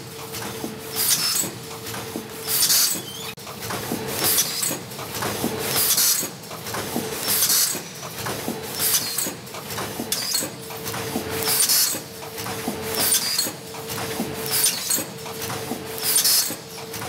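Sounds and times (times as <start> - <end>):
packing machine running: 0.0 - 17.0
pneumatic air hiss: 0.9 - 1.6, 2.4 - 3.2, 5.7 - 6.4, 7.2 - 7.9, 8.7 - 9.4, 16.0 - 16.6.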